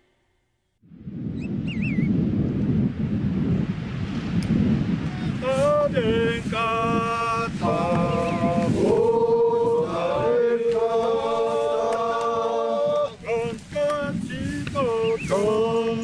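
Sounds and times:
voices chanting long notes: 5.4s - 16.0s.

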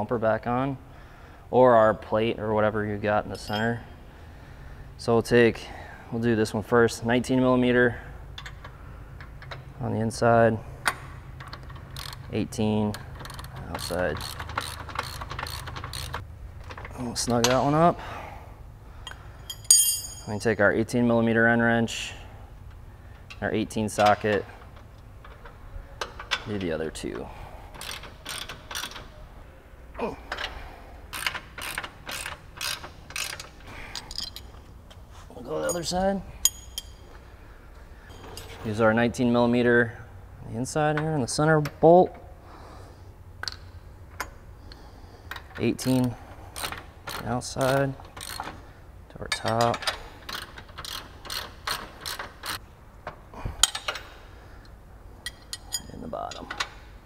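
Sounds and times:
ratchet wrench clicking: 11.4s - 12.3s, 13.2s - 16.2s, 27.7s - 29.1s, 31.1s - 34.4s, 45.8s - 48.6s, 50.2s - 52.6s.

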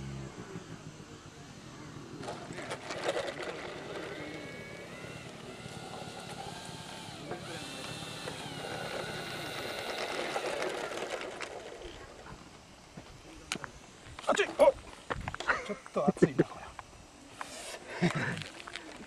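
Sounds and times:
model plane motor whining: 0.0s - 12.9s.

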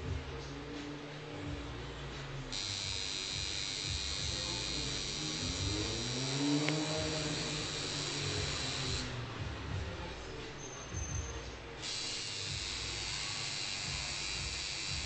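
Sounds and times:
tattoo machine buzzing: 2.5s - 9.2s, 11.8s - 15.0s.

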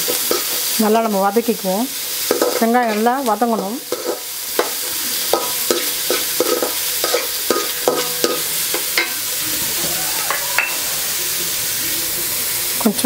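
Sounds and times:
metal spatula scraping a pan: 0.0s - 0.7s, 2.1s - 11.2s
onions sizzling in hot oil: 0.0s - 13.0s.

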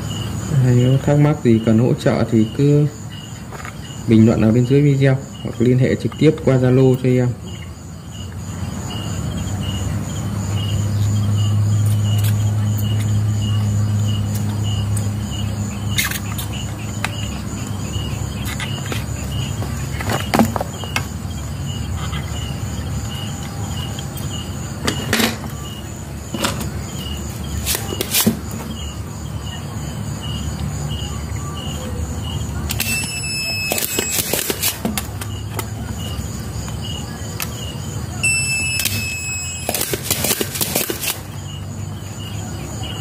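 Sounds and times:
faint high chirp: 32.8s - 34.5s, 38.2s - 40.0s.

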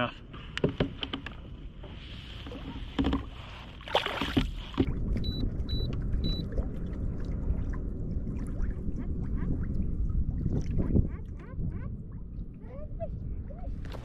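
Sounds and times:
water washing against hull: 0.8s - 14.0s
short electronic beeps: 5.2s - 6.4s.

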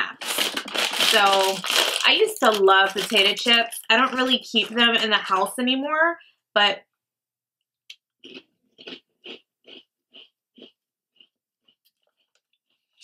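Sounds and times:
potato chip crunching: 0.0s - 5.0s.

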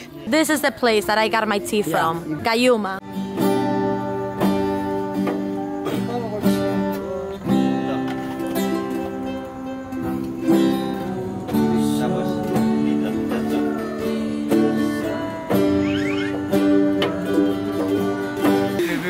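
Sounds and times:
acoustic guitar strumming chords: 0.0s - 19.0s.

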